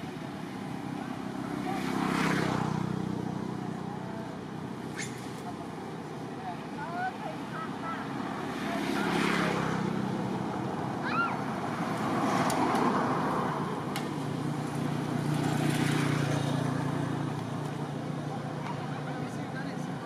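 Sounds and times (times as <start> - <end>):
traffic engine hum: 0.0 - 20.0.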